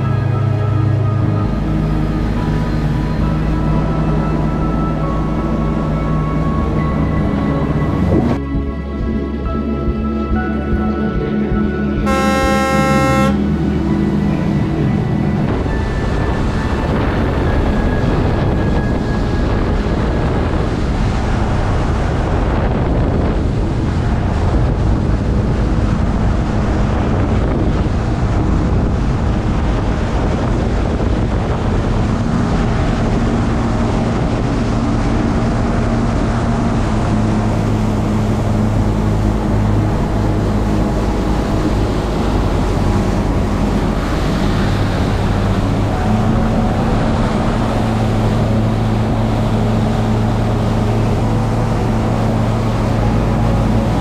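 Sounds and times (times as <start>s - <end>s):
wind buffeting microphone: 0.0s - 10.4s, 13.5s - 54.0s
motorboat engine running: 0.0s - 54.0s
water rushing past hull: 12.0s - 54.0s.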